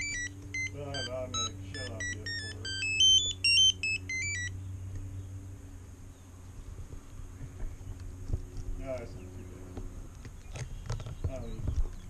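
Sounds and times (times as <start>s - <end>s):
electronic beep melody: 0.0s - 4.5s
low steady hum: 0.0s - 12.0s.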